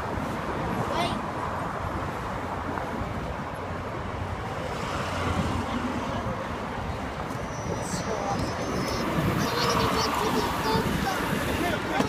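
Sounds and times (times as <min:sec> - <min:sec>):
passing cars rumbling: 0:00.0 - 0:12.0
murmur of voices: 0:04.2 - 0:12.0.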